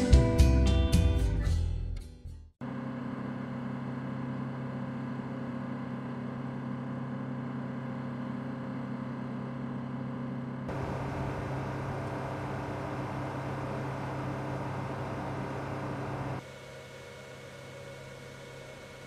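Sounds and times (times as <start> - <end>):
power equipment humming: 10.7 - 16.4.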